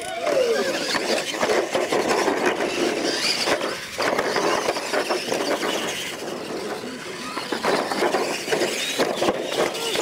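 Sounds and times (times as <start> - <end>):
electric motors and gears whining: 0.0 - 10.0
tyres scrabbling over dirt: 0.1 - 10.0.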